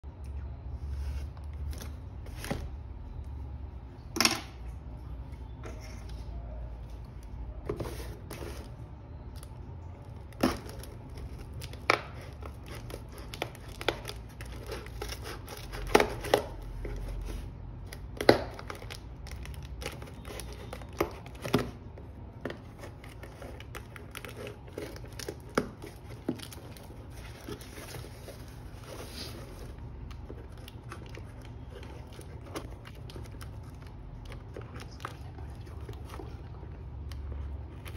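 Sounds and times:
wrapping crinkling: 0:07.7 - 0:37.9.

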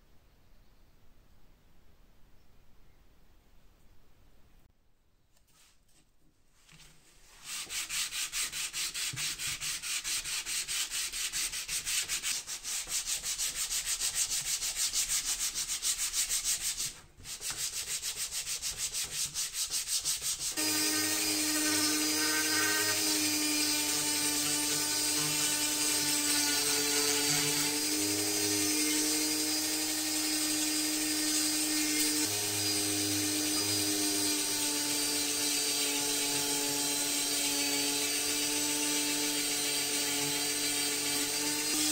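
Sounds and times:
rotary sanding tool whining: 0:19.6 - 0:41.9.

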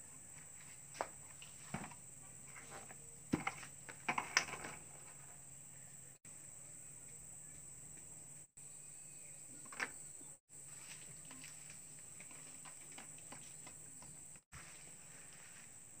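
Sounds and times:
wire mesh scraping plastic bucket: 0:01.5 - 0:05.3.

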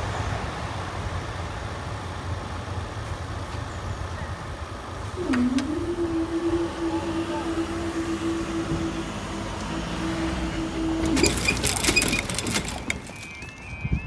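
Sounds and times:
hydraulic power unit humming: 0:03.3 - 0:14.0.

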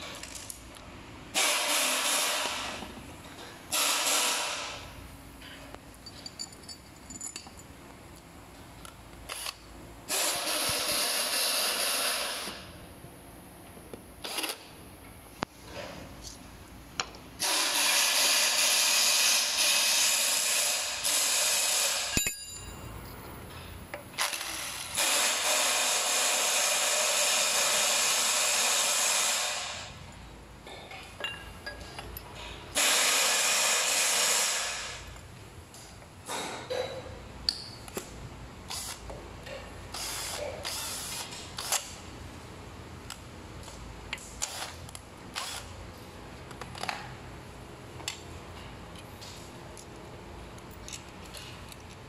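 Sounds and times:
clicks of parts and screws: 0:38.7 - 0:42.0, 0:43.0 - 0:45.7, 0:50.5 - 0:52.0.

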